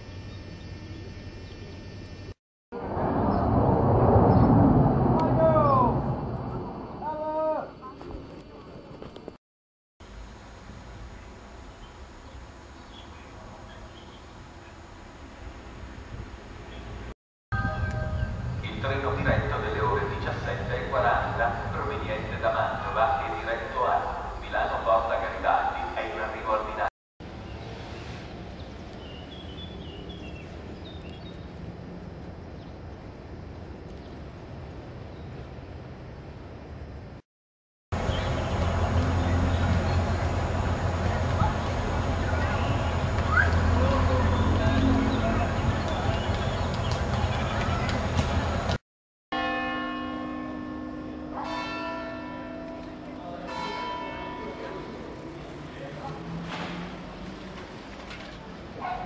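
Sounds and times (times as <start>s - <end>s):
outdoor background rumble: 0.0s - 9.3s, 38.0s - 48.8s, 54.8s - 59.0s
church bell tolling: 17.6s - 19.6s, 49.4s - 55.5s.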